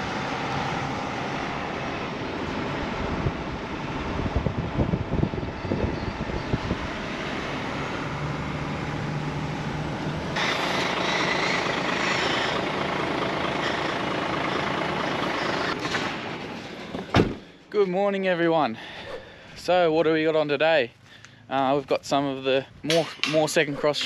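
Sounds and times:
truck engine running: 0:00.0 - 0:17.6
road rumble: 0:00.0 - 0:24.0.

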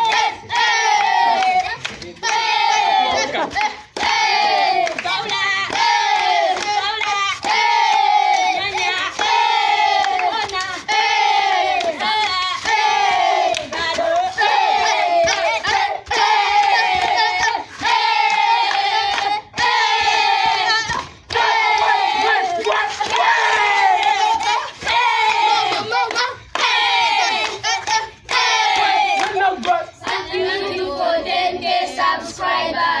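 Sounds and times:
hand claps: 0:00.0 - 0:30.3
children chanting and shouting: 0:00.0 - 0:33.0.

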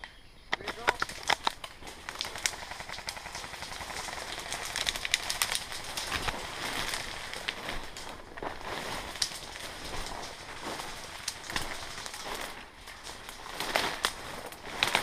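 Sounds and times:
twigs cracking: 0:00.0 - 0:15.0
footsteps crunching through dry leaves: 0:00.8 - 0:15.0.

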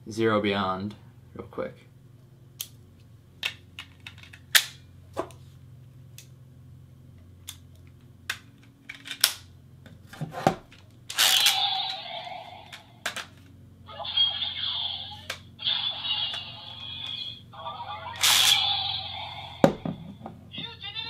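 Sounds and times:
plastic toy clicks and snaps: 0:08.3 - 0:09.5, 0:18.2 - 0:18.6
electronic toy sound effect: 0:11.1 - 0:13.0, 0:13.9 - 0:19.8.

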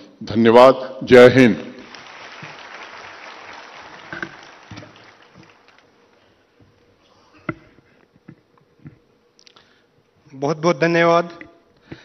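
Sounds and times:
audience applauding: 0:01.8 - 0:06.5.

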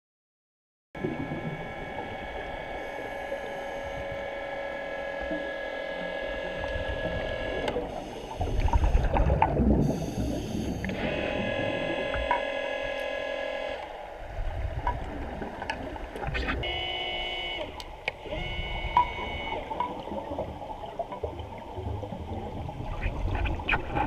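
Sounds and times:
underwater motor whine: 0:01.0 - 0:23.0
regulator bubbles: 0:06.6 - 0:12.4.

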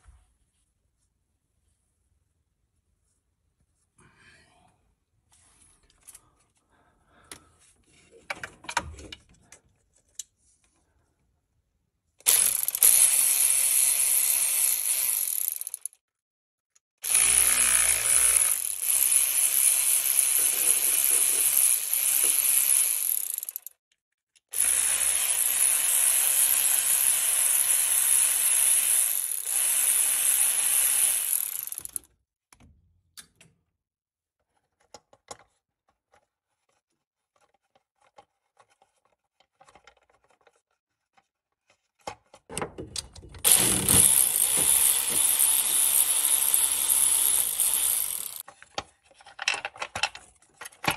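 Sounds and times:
electric ratchet whirring: 0:12.3 - 0:16.0, 0:17.0 - 0:23.7, 0:24.6 - 0:32.1, 0:43.4 - 0:48.4
faint clicks and handling: 0:34.4 - 0:43.4.

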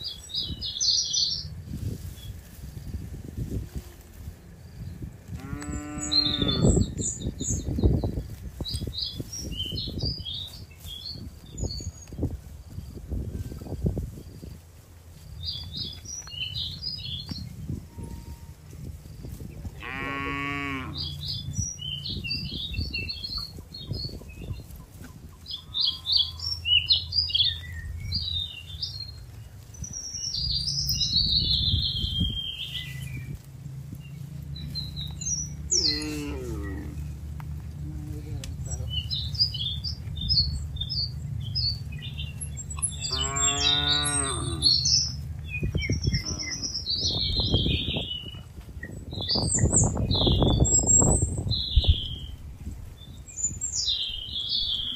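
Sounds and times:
small birds chirping: 0:00.0 - 0:54.9
cows mooing: 0:03.7 - 0:07.6, 0:19.7 - 0:21.4, 0:25.5 - 0:26.9, 0:34.6 - 0:38.1, 0:41.4 - 0:45.2, 0:46.0 - 0:46.9.

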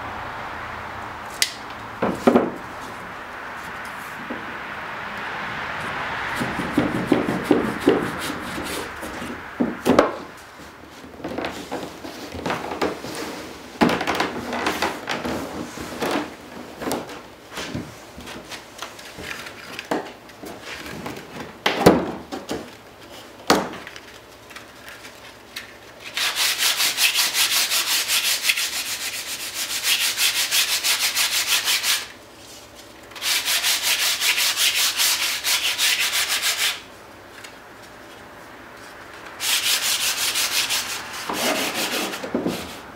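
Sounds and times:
knocks and scrapes of wood strip: 0:06.3 - 0:42.9
sanding block on wood: 0:06.4 - 0:09.4, 0:26.1 - 0:32.2, 0:33.2 - 0:36.9, 0:39.4 - 0:42.9.

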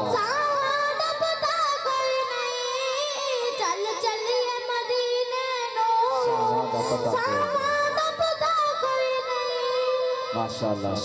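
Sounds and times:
boy singing into microphone: 0:00.0 - 0:11.0.

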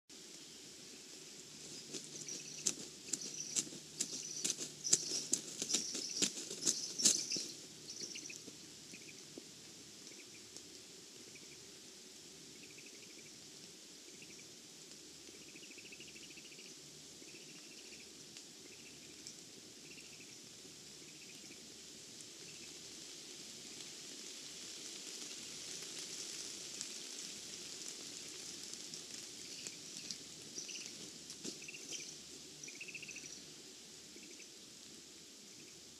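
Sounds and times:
rain pattering in forest: 0:00.1 - 0:35.9
faint high chirps: 0:01.6 - 0:09.2, 0:29.4 - 0:33.5.

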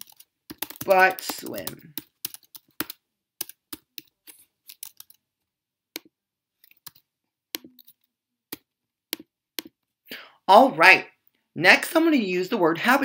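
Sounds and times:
typing on computer keyboard: 0:00.0 - 0:05.2, 0:06.0 - 0:09.8.

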